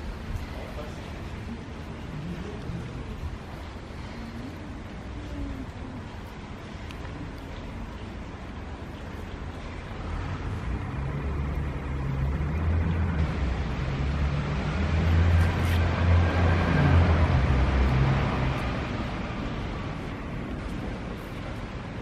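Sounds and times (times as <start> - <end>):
vehicle engine rumble passing: 8.5 - 22.0.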